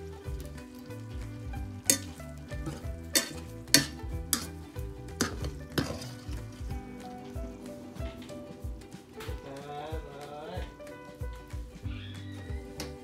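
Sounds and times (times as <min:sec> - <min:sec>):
food sizzling in frying pan: 0:00.0 - 0:09.2
background music: 0:00.0 - 0:13.0
metal skimmer knocking against pan: 0:01.9 - 0:04.5.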